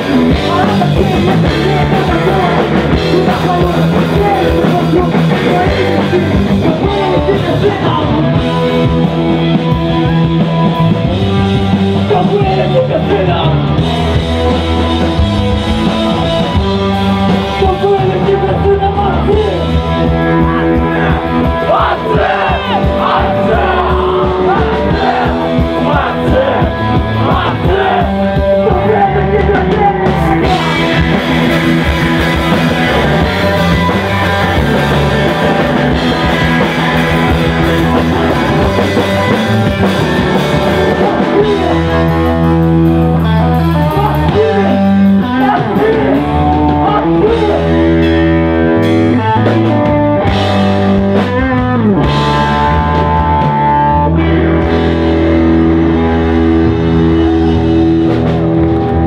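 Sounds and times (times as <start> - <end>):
bass: 0.0 - 59.0
drums: 0.0 - 59.0
electric guitar: 0.0 - 59.0
person singing: 0.1 - 8.9, 20.4 - 31.2, 43.2 - 48.0.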